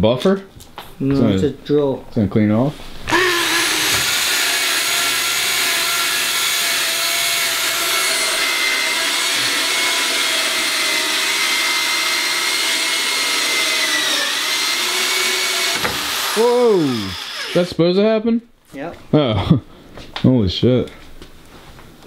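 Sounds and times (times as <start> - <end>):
electric drill with hole saw: 3.1 - 17.8.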